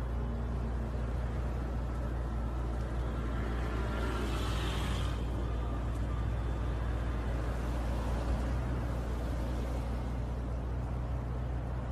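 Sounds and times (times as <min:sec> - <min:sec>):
car engine idling: 0:00.0 - 0:03.3.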